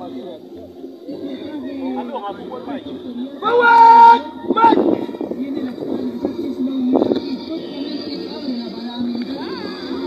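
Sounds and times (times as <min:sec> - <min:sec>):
indistinct voices: 0:00.0 - 0:10.0
noisy background: 0:00.0 - 0:10.0.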